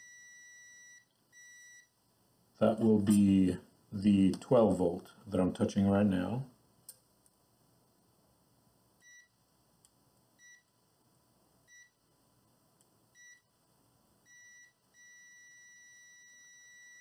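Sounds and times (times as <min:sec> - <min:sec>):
multimeter continuity beeps: 0:00.0 - 0:02.0, 0:09.0 - 0:09.4, 0:10.4 - 0:10.7, 0:11.7 - 0:12.0, 0:13.1 - 0:13.5, 0:14.2 - 0:17.0.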